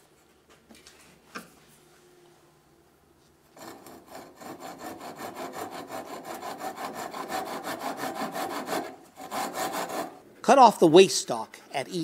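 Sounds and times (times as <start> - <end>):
hand saw cutting wood: 3.6 - 10.2.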